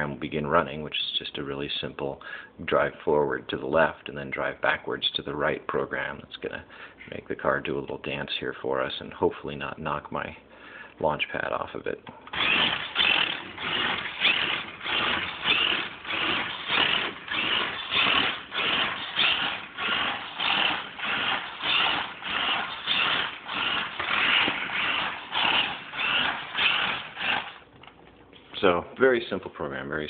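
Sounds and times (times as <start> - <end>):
toy car motor whirring: 12.3 - 27.6.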